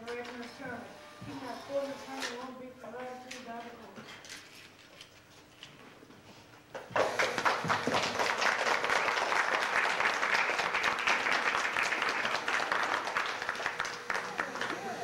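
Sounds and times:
audience applause: 0:06.9 - 0:15.0.

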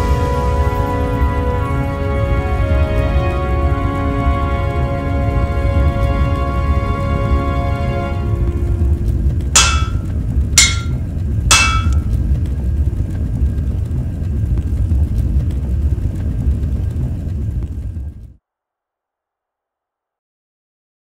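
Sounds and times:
low rumble: 0:08.2 - 0:18.3
hammer blows on an anvil: 0:09.6 - 0:12.1.

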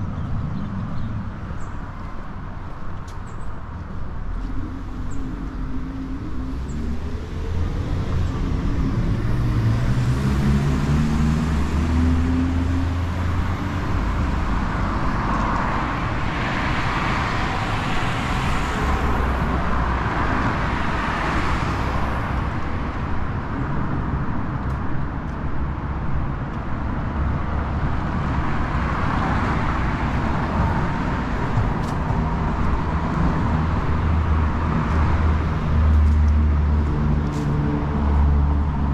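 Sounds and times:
cars passing by: 0:00.0 - 0:38.9
low traffic rumble: 0:00.0 - 0:38.9
vehicle engine speeding up: 0:04.4 - 0:22.4.

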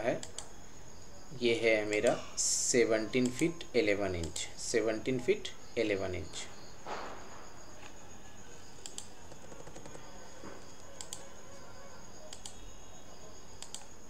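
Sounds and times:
background hiss: 0:00.0 - 0:14.0
faint high whine: 0:00.0 - 0:14.0
mouse and keyboard clicks: 0:08.8 - 0:10.0, 0:11.0 - 0:11.2.

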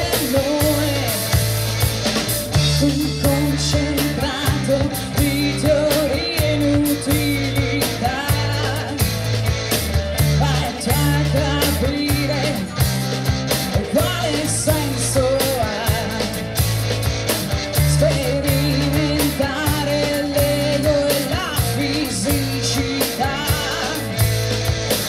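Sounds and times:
woman singing: 0:00.0 - 0:01.4, 0:02.7 - 0:09.2, 0:10.2 - 0:13.0, 0:13.7 - 0:16.5, 0:17.8 - 0:24.3
bass guitar: 0:00.0 - 0:25.0
drum kit steady beat: 0:00.0 - 0:25.0
electric guitar: 0:00.0 - 0:25.0.

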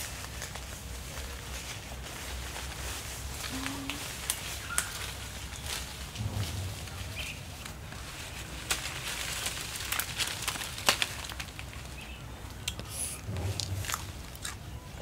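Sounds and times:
leaves rustling: 0:00.0 - 0:15.0
twigs snapping: 0:08.6 - 0:11.8.

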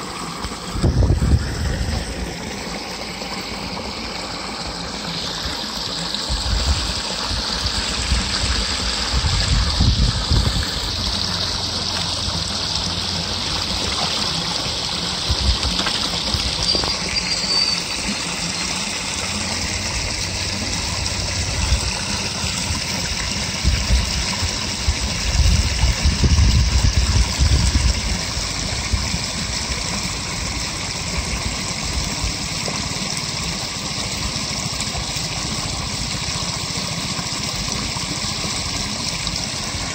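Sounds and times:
water rushing over weir: 0:00.0 - 0:39.9
low rumbling: 0:06.3 - 0:32.3.

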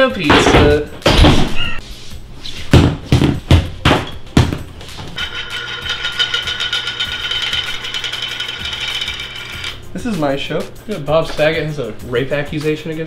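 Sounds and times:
heavy thumps: 0:02.7 - 0:05.2
fast rattle: 0:05.2 - 0:09.8
high buzzing hum: 0:05.2 - 0:09.9.

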